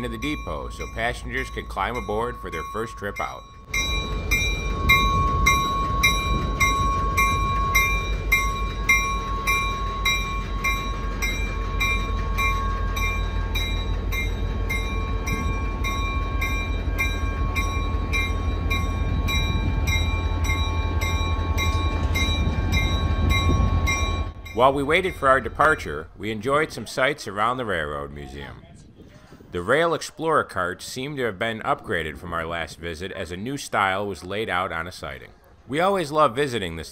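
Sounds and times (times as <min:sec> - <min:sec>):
locomotive bell ringing: 0:00.0 - 0:28.4
locomotive rumbling: 0:00.0 - 0:36.9.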